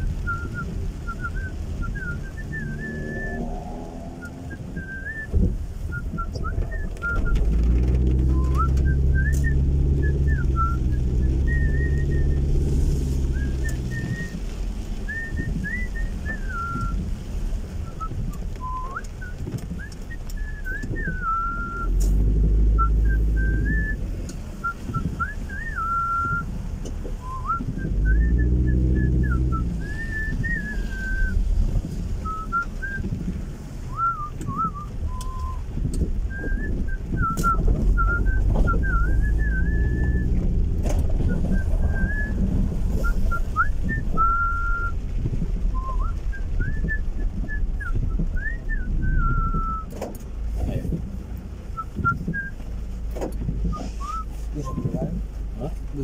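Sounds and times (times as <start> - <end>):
car engine humming: 0.0 - 56.0
person whistling a tune: 0.2 - 7.5, 8.2 - 14.4, 15.1 - 17.0, 17.8 - 22.1, 22.7 - 24.0, 24.6 - 26.5, 27.2 - 31.4, 32.2 - 33.1, 33.9 - 35.7, 36.3 - 40.4, 41.2 - 45.0, 45.8 - 50.0, 51.8 - 52.6, 53.6 - 55.2.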